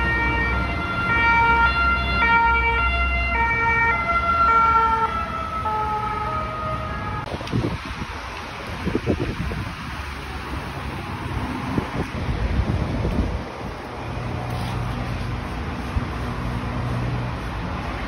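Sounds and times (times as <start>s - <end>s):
ambulance two-tone siren: 0.0s - 7.3s
road traffic rumbling: 0.0s - 18.0s.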